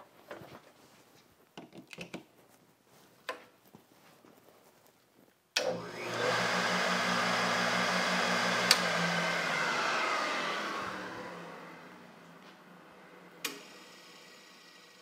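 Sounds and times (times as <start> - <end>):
electric motor and grinding wheel: 5.6 - 15.0.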